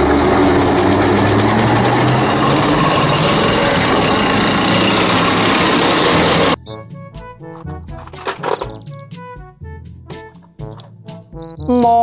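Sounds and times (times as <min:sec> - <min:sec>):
tank engine and tracks: 0:00.0 - 0:06.6, 0:07.5 - 0:09.0.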